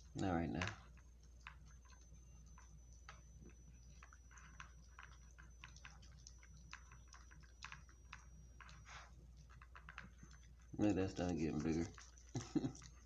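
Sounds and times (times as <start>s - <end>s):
dog crunching food from plastic bowl: 4.4s - 13.0s.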